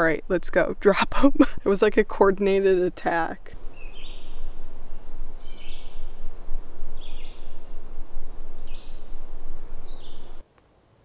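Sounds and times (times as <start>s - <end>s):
steady low rumble: 0.0s - 10.4s
bird giving harsh calls: 3.6s - 7.8s.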